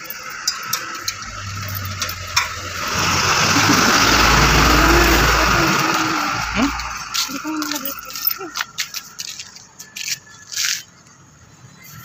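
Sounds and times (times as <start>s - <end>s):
vehicle engine passing: 1.0s - 8.5s.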